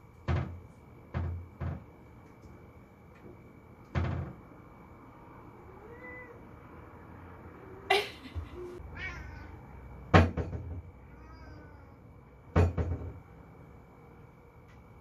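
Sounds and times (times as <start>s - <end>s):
cupboard door knocking on frame: 0.3s - 1.8s, 10.1s - 10.8s, 12.6s - 13.2s
cupboard door rattling: 3.9s - 4.4s
cat meow: 5.6s - 6.5s, 8.6s - 9.6s, 11.0s - 12.1s.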